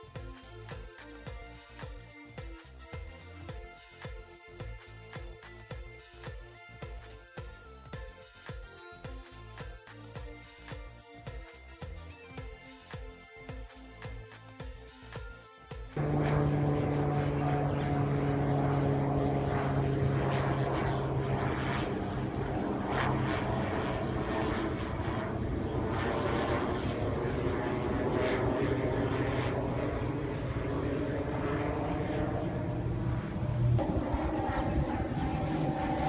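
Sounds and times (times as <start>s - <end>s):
music: 0.0s - 25.3s.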